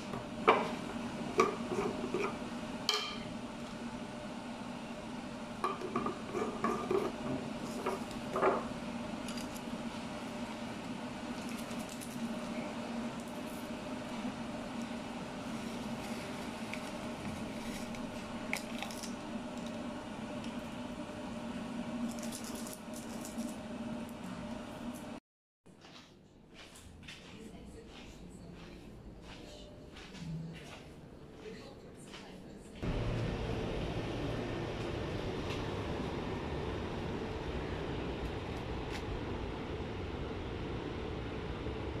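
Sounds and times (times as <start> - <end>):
kitchenware clinking: 1.4 - 3.3
steady low hum: 28.2 - 42.0.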